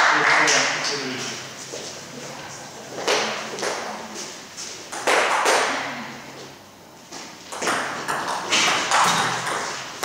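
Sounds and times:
table tennis ball hits: 0:07.5 - 0:10.0.

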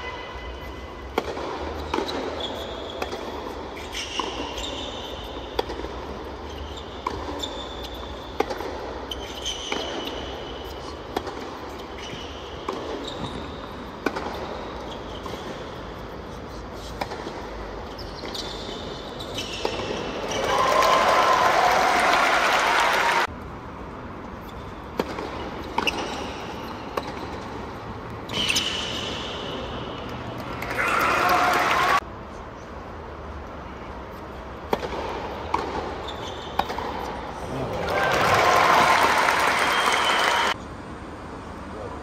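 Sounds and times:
shoes squeaking on court: 0:00.6 - 0:20.6, 0:24.3 - 0:30.6, 0:34.1 - 0:37.4
racket hitting tennis ball: 0:01.0 - 0:16.1, 0:16.9 - 0:18.4, 0:19.4 - 0:20.3, 0:24.9 - 0:30.6, 0:34.6 - 0:37.4
crowd applause: 0:20.5 - 0:23.3, 0:37.8 - 0:40.6.

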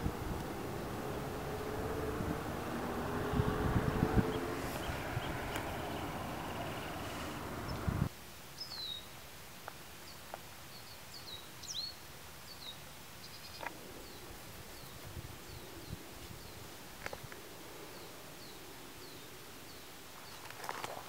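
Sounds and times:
steady rushing noise: 0:00.0 - 0:08.1
birds chirping: 0:00.0 - 0:09.0.

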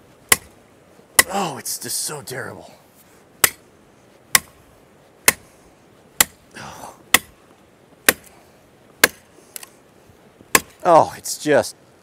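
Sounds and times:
hatchet chopping into dry wood: 0:00.3 - 0:00.6, 0:03.4 - 0:03.6, 0:04.3 - 0:04.6, 0:05.2 - 0:05.5, 0:06.2 - 0:06.4, 0:07.1 - 0:07.4, 0:08.0 - 0:08.3, 0:09.0 - 0:09.7, 0:10.4 - 0:10.8.

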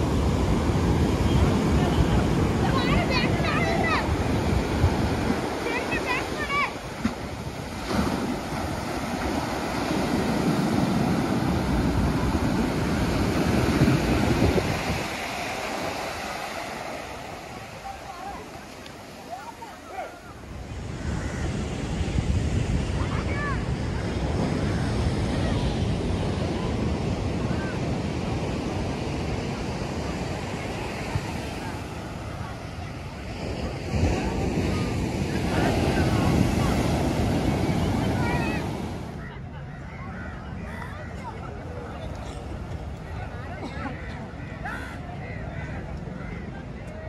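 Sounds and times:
wind rumbling on microphone: 0:00.0 - 0:15.9, 0:20.4 - 0:43.5
surf washing up a beach: 0:00.0 - 0:47.0.

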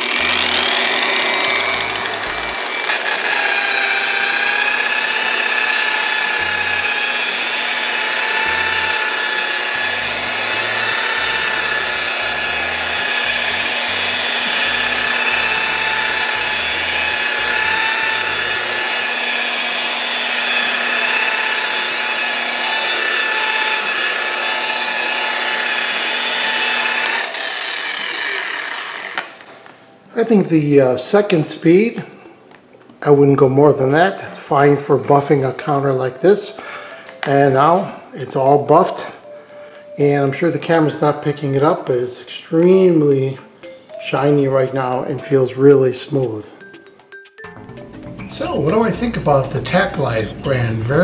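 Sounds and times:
rotary polisher motor whine: 0:00.0 - 0:29.6.

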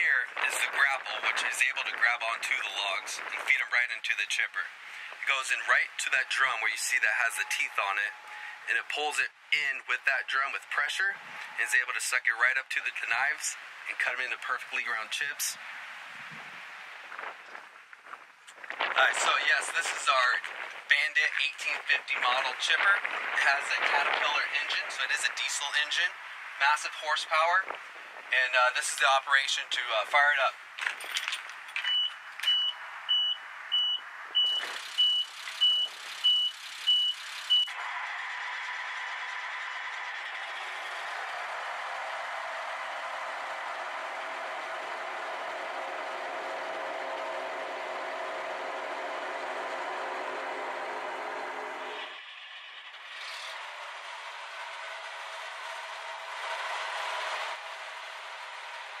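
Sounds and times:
diesel engine humming: 0:04.6 - 0:11.8, 0:33.1 - 0:59.0
short electronic beeps: 0:31.9 - 0:37.8.

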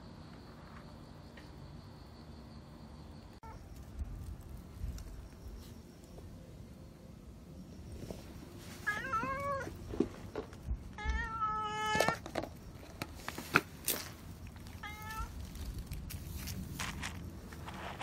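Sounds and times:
cat meowing: 0:08.8 - 0:09.7, 0:11.0 - 0:12.2, 0:14.8 - 0:15.3.

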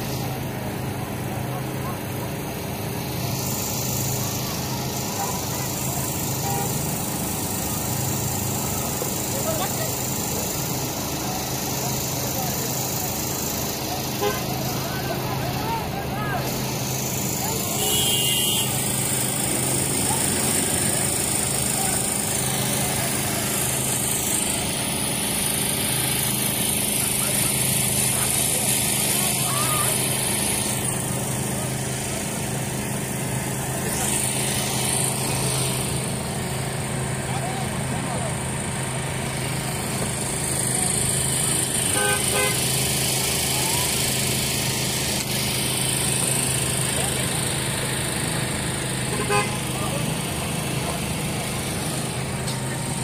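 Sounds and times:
crowd chatter: 0:00.0 - 0:53.0
engine drone: 0:00.0 - 0:53.0
car horn tooting: 0:14.2 - 0:14.5, 0:17.8 - 0:18.8, 0:41.9 - 0:42.7, 0:49.1 - 0:49.8.

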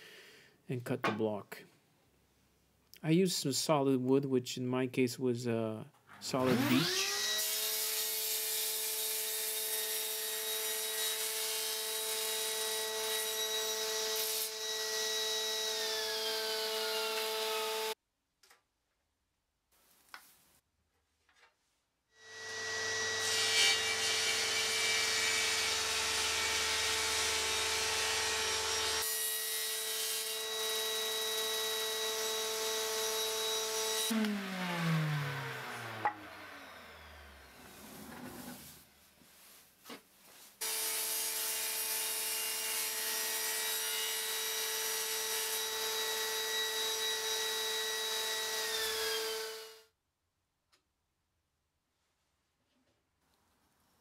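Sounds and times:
saw blade spinning down: 0:06.4 - 0:07.4, 0:34.1 - 0:38.6
table saw motor whine: 0:06.4 - 0:07.6, 0:30.5 - 0:38.5.

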